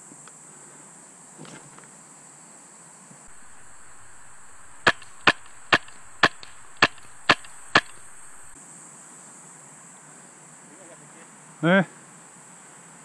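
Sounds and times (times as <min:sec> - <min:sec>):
airsoft rifle shots: 0:03.3 - 0:08.6.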